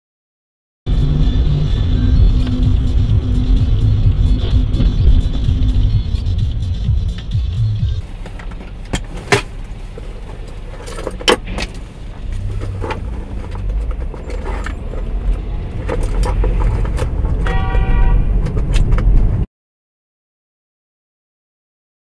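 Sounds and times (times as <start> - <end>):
car engine and road rumble: 0.9 - 19.5
clicks and rattles: 8.1 - 17.5.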